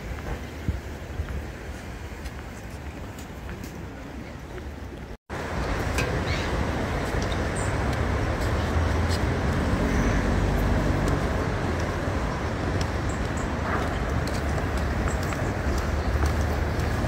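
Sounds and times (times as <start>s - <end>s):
vehicles passing on road: 0.0s - 17.0s
engine hum: 5.4s - 17.0s.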